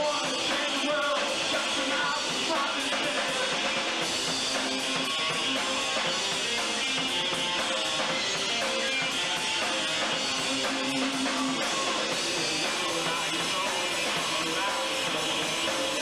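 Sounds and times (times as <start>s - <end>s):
guitar: 0.0s - 16.0s
rock band playing live: 0.0s - 16.0s.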